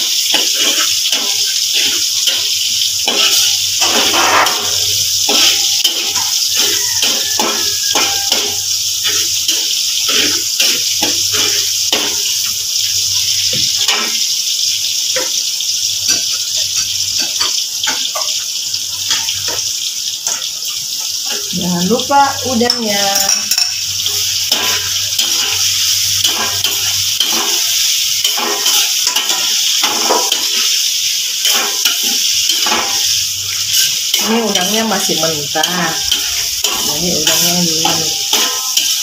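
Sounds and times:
metal spatula scraping pan: 0:00.0 - 0:12.5, 0:22.5 - 0:39.0
food sizzling in hot oil: 0:00.0 - 0:39.0.

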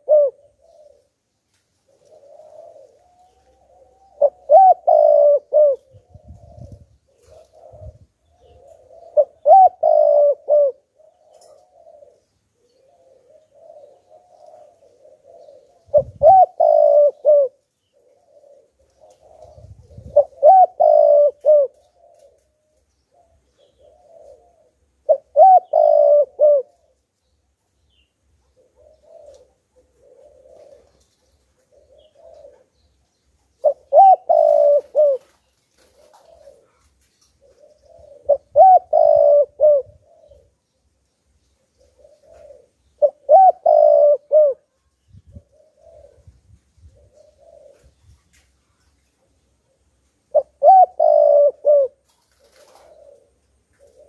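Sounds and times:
dove cooing: 0:00.0 - 0:27.2, 0:28.3 - 0:40.6, 0:41.6 - 0:54.0.

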